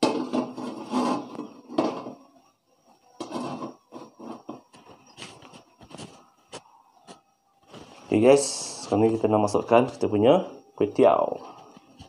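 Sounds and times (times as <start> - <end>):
wok scraping on burner grate: 0.0 - 2.2, 3.2 - 6.2.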